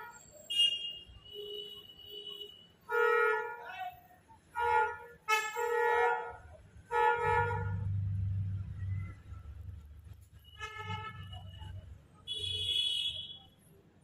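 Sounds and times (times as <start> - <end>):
vehicle engine passing by: 7.5 - 10.2
vehicle horn honking: 10.4 - 13.4.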